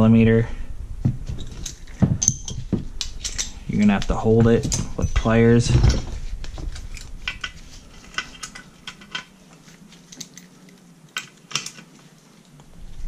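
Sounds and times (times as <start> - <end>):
metal hand tools clinking: 1.4 - 6.0, 6.8 - 11.9.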